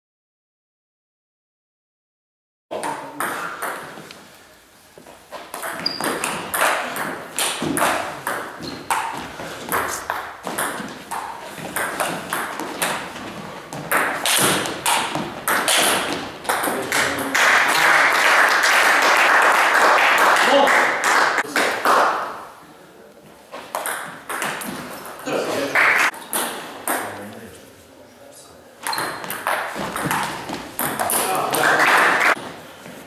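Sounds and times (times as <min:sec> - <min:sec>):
people clapping: 0:06.6 - 0:08.2, 0:14.1 - 0:22.5, 0:25.6 - 0:26.2, 0:31.0 - 0:32.4.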